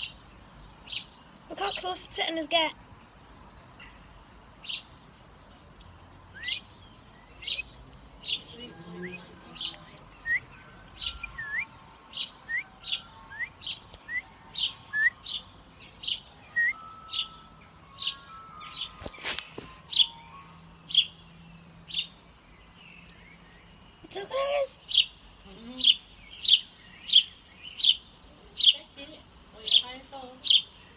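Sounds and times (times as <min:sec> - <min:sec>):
sparrow chirping: 0:00.0 - 0:30.9.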